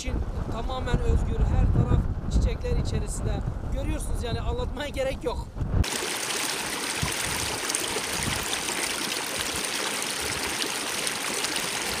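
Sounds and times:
brook running over stones: 0:05.8 - 0:12.0
small water splashes: 0:05.8 - 0:12.0.

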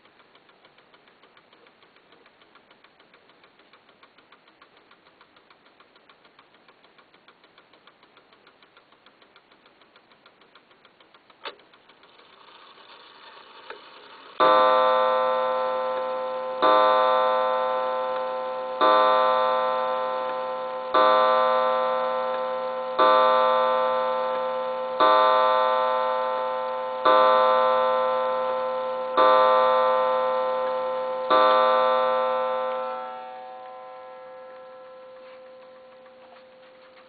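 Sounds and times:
clock striking a gong: 0:14.4 - 0:37.0.

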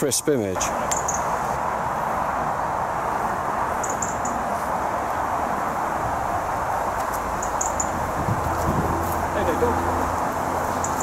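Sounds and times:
rushing outdoor noise: 0:00.0 - 0:11.0
bird chirping: 0:00.6 - 0:01.5, 0:03.7 - 0:04.5, 0:07.4 - 0:08.0, 0:10.6 - 0:11.0.

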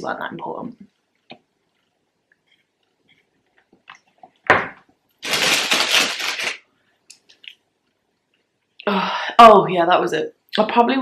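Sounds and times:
paper bag crinkling: 0:05.2 - 0:06.7.

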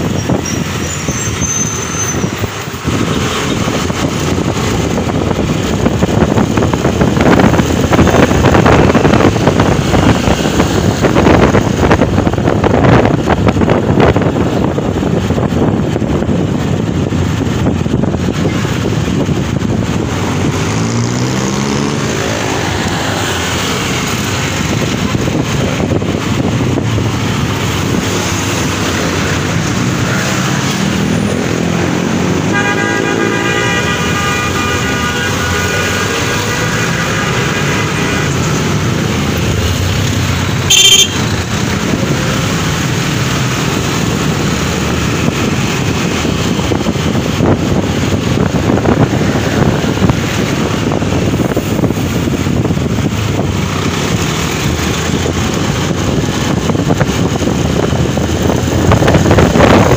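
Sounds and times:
motorcycle engine revving: 0:16.4 - 0:59.9
vehicle horn: 0:32.5 - 0:38.2, 0:40.6 - 0:41.3.

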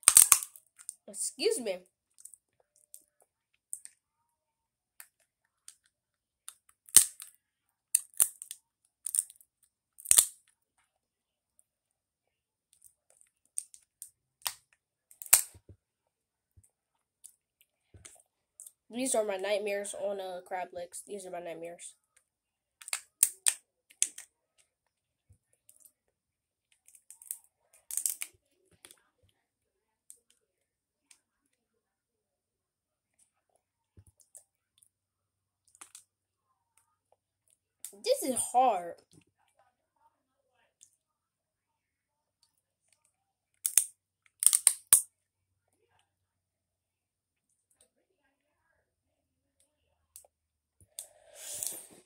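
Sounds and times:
crab shell cracking: 0:00.0 - 0:00.9, 0:06.8 - 0:07.3, 0:08.0 - 0:09.4, 0:10.0 - 0:10.3, 0:15.2 - 0:15.5, 0:26.9 - 0:28.3, 0:43.6 - 0:45.0.

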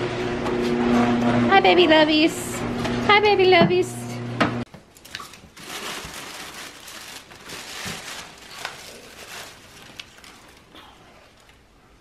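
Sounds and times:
tissue paper crinkling: 0:05.0 - 0:10.7.

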